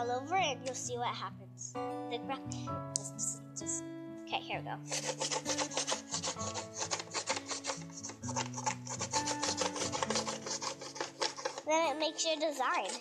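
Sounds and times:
crayon scratching on paper: 0:04.9 - 0:13.0.

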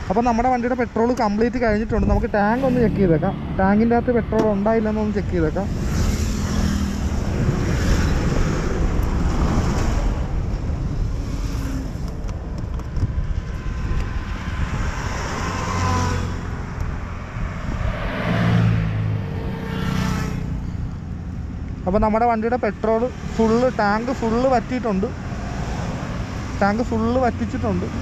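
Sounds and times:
road traffic passing: 0:00.0 - 0:28.0
wind on microphone: 0:01.3 - 0:02.6, 0:05.7 - 0:21.4.

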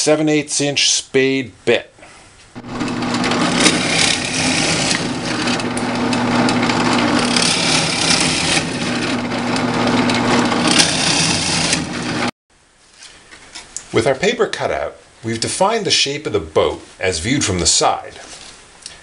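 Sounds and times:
drill press motor running: 0:02.6 - 0:12.3
spade bit boring through wood: 0:02.6 - 0:12.3.

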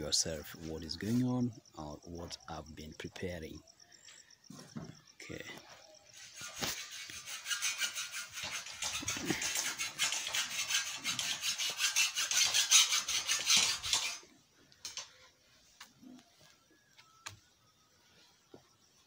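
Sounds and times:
hacksaw cutting steel bar: 0:06.3 - 0:14.2.

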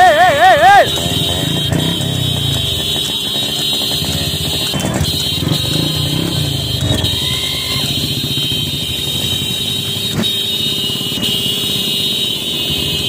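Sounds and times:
motorcycle engines running: 0:00.0 - 0:13.0.

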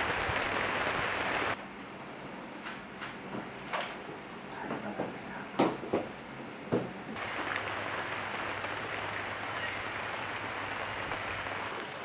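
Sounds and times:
rain on stone paving: 0:00.0 - 0:01.6, 0:07.2 - 0:12.0.

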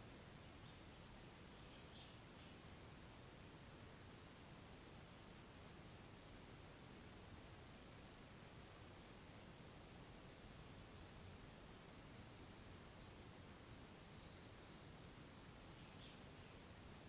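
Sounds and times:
faint background hiss: 0:00.0 - 0:17.0
faint high-pitched chirps: 0:09.6 - 0:11.0, 0:11.7 - 0:16.3.

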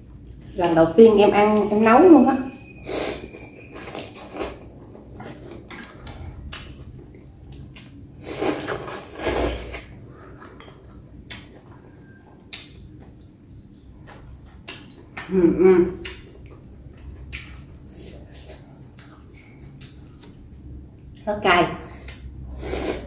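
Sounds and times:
slurping noodle soup: 0:02.8 - 0:05.6, 0:08.2 - 0:10.7, 0:22.5 - 0:23.0
chewing: 0:03.8 - 0:15.3, 0:16.0 - 0:21.2.

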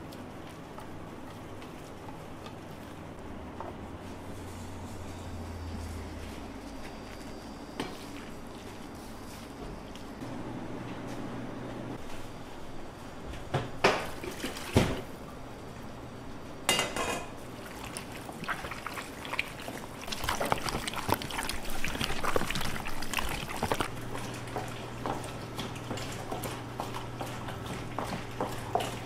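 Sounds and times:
wet squelching and sloshing: 0:14.0 - 0:15.2, 0:17.4 - 0:29.0.

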